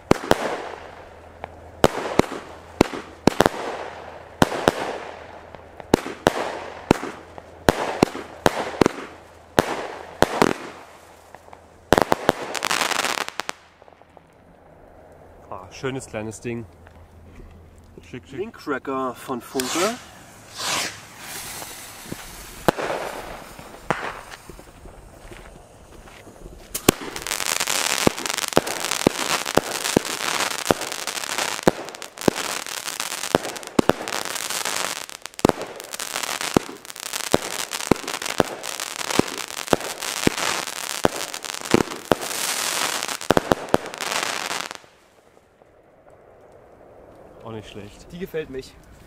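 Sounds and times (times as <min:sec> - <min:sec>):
firework pops and bangs: 0:00.0 - 0:00.8, 0:01.4 - 0:14.3, 0:19.6 - 0:47.2
firework fuse hissing: 0:19.4 - 0:45.0.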